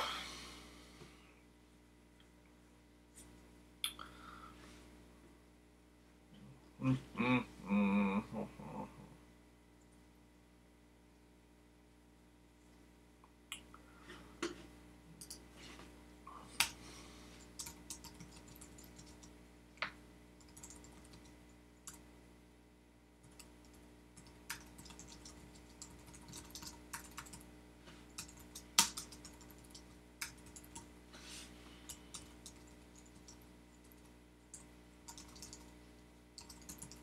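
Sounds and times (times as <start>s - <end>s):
faint steady hum: 0.0s - 37.0s
typing on computer keyboard: 17.6s - 19.3s, 20.4s - 21.3s, 23.2s - 27.5s, 28.1s - 30.9s, 31.9s - 35.7s, 36.4s - 37.0s.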